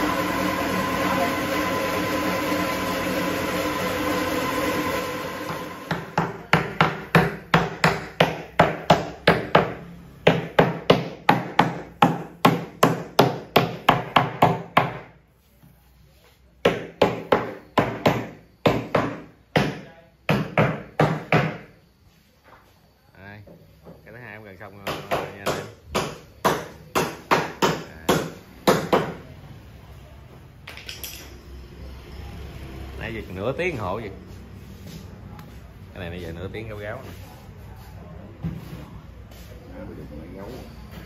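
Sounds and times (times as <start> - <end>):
machine running: 0.0 - 6.0
hammer blows on wooden panels: 5.4 - 15.2, 16.6 - 21.8, 23.4 - 29.3.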